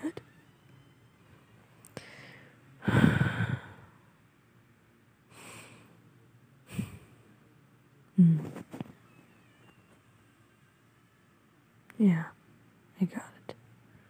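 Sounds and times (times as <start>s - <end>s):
person breathing softly: 1.9s - 4.0s
person huffing: 2.0s - 3.9s
person sighing exhale: 2.0s - 3.9s.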